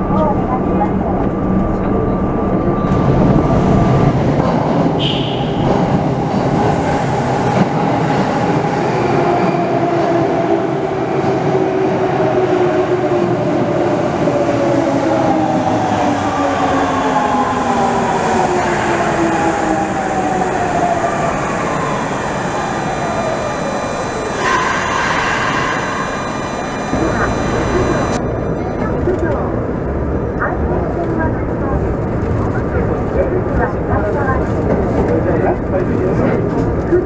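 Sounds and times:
train wheels rumbling on rail: 0:00.0 - 0:28.2, 0:28.8 - 0:37.0
train motor whine falling: 0:21.5 - 0:28.2.

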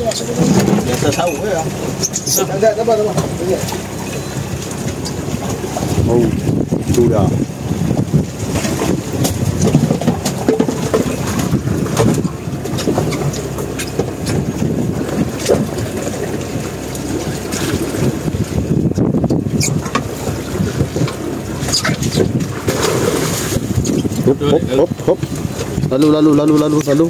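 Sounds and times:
wind rumbling on microphone: 0:00.0 - 0:27.0
sea washing past: 0:20.0 - 0:24.1.

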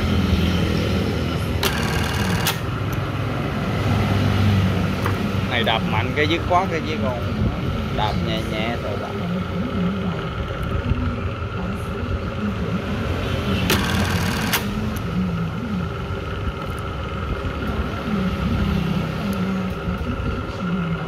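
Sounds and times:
sewing machine motor humming: 0:01.4 - 0:03.1, 0:13.4 - 0:17.6
rapid machine stitching: 0:01.5 - 0:03.0, 0:13.5 - 0:15.0.

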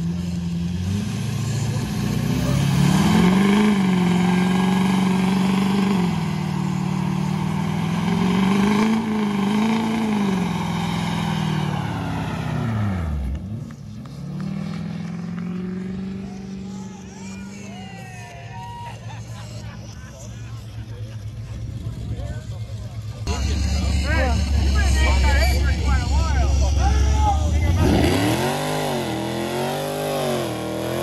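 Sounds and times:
spinning tyres hissing: 0:00.0 - 0:13.0
truck engine at high revs: 0:00.0 - 0:17.6, 0:19.1 - 0:31.0.

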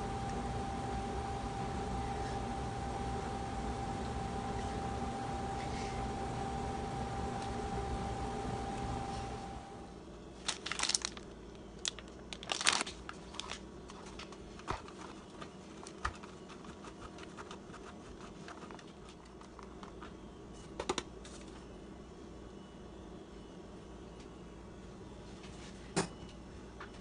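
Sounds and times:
rustling crinkling bursts: 0:10.4 - 0:17.9.

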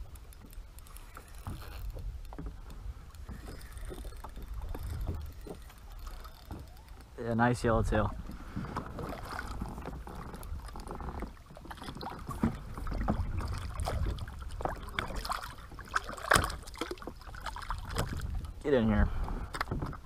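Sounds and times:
water sloshing and splashing: 0:00.0 - 0:20.0
sharp knocks on hull: 0:16.0 - 0:17.1.

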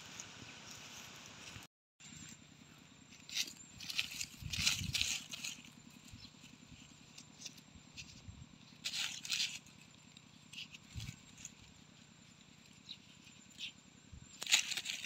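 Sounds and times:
dry leaves crackling: 0:03.1 - 0:15.0
fingers scratching dry soil: 0:03.1 - 0:15.0.

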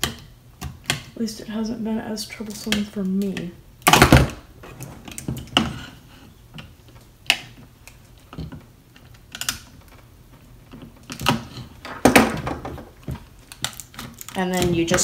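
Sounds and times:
plastic and metal parts clicking: 0:13.0 - 0:15.0.

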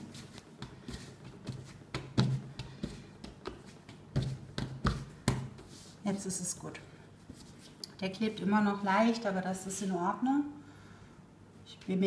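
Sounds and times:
dough kneaded by hand: 0:00.0 - 0:06.4.

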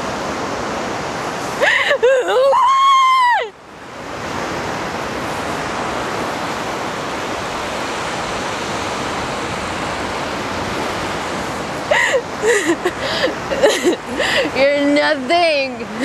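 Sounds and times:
surf rushing: 0:00.0 - 0:16.0
woman wailing: 0:01.6 - 0:03.6, 0:11.9 - 0:14.6.

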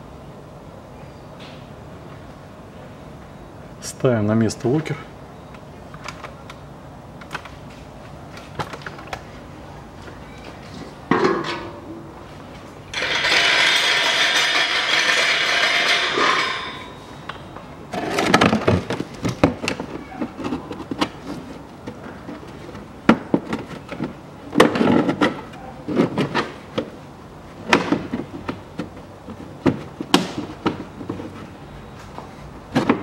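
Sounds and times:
plastic clattering: 0:17.9 - 0:26.9.

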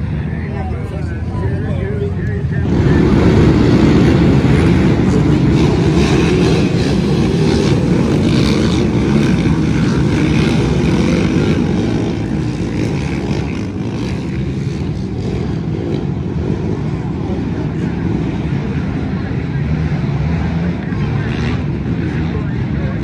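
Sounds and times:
racing quad bike engines droning: 0:00.0 - 0:23.0.

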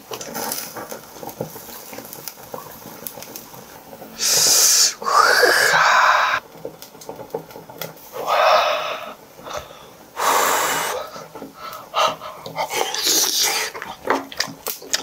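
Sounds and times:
man slurping: 0:04.2 - 0:06.4, 0:08.1 - 0:14.1.

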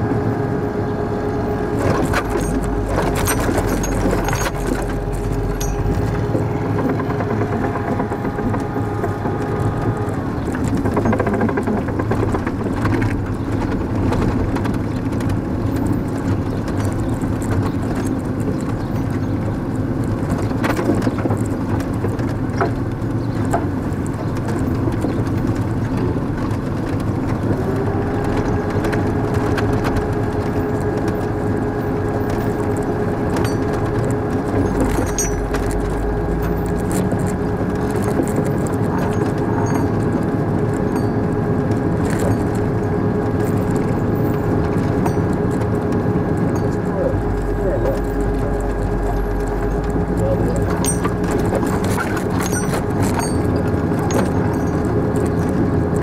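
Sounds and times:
whine: 0:00.0 - 0:12.6, 0:27.7 - 0:56.0
vehicle engine and road noise: 0:00.0 - 0:56.0
vehicle knocks and rattles: 0:01.5 - 0:56.0.

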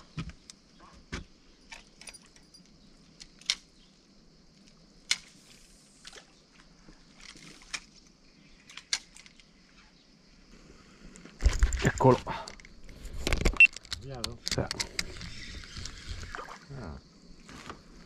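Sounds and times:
light metallic clinks: 0:01.6 - 0:02.9.

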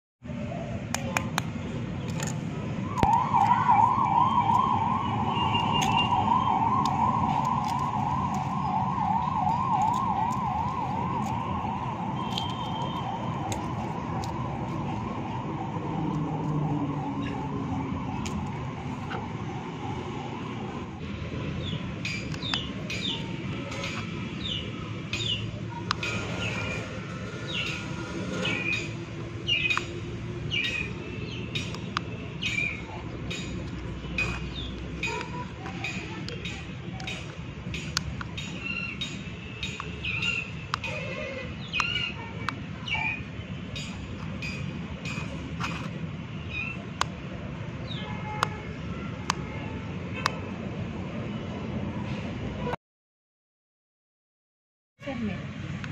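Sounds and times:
electronic siren warbling: 0:02.9 - 0:13.5.

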